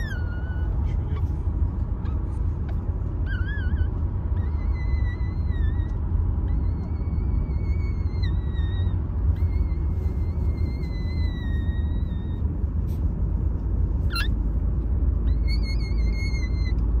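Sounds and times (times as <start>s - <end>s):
puppies whining: 0.0s - 13.1s, 13.8s - 17.0s
steady low rumble: 0.0s - 17.0s.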